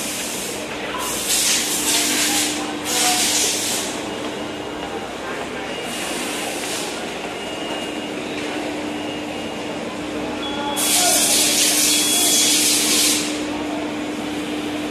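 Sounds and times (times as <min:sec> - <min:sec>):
assembly line machinery humming: 0:00.0 - 0:14.9
compressed air hissing: 0:10.8 - 0:13.4.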